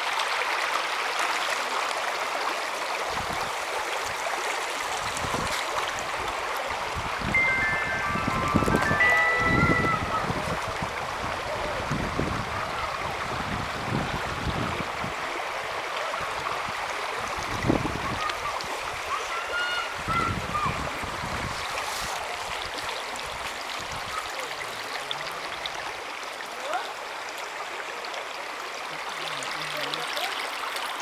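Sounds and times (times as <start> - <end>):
stream running over rocks: 0.0 - 31.0
short high-pitched calls: 7.3 - 10.2.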